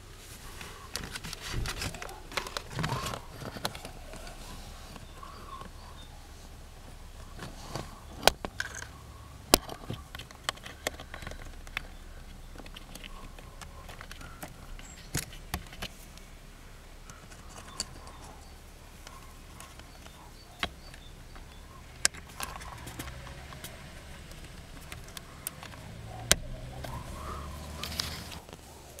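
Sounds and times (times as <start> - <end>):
fingers clicking plastic fuses: 7.2 - 16.3, 17.0 - 28.6.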